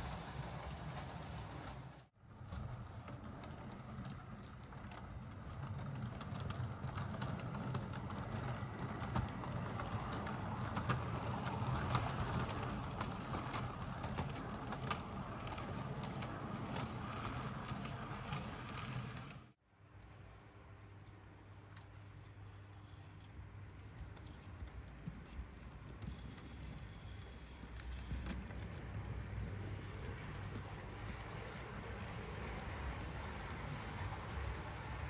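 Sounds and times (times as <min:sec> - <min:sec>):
wheels clicking over rail joints: 0:00.0 - 0:19.6, 0:20.9 - 0:35.0.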